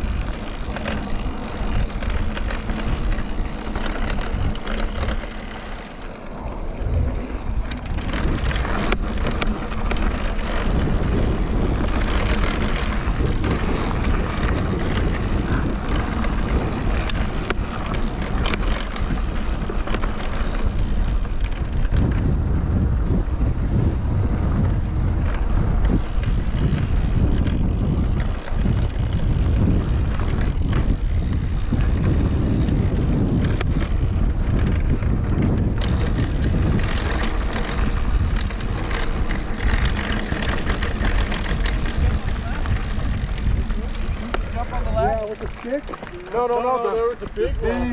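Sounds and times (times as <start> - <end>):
bike clicks and rattles: 0.0 - 47.9
bike tyre noise: 0.0 - 47.9
wind buffeting microphone: 0.0 - 47.9.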